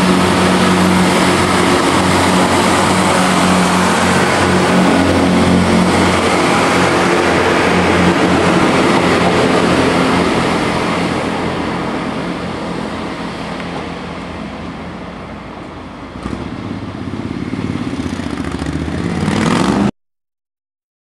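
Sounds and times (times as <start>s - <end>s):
diesel train pulling away: 0.0s - 19.9s
motorcycle engine approaching: 0.0s - 19.9s.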